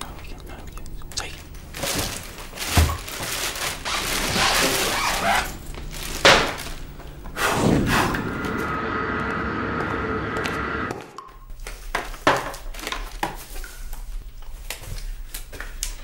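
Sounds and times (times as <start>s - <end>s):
noisy whooshing: 3.8s - 11.2s
steady sustained tone: 5.5s - 11.0s
sharp hit: 6.0s - 11.0s.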